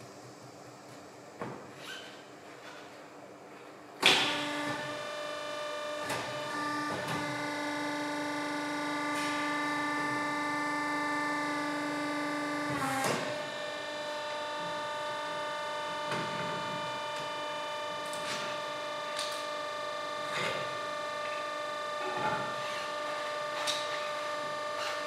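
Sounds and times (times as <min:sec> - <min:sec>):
motor starting clunk: 0:04.0 - 0:04.9
electric motor whine: 0:04.2 - 0:18.1.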